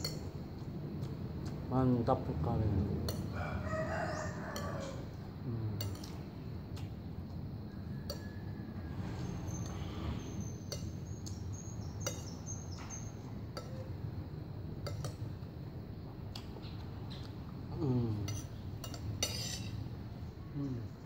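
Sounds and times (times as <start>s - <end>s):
metal spoon clinking on glass plate: 18.3s - 19.8s.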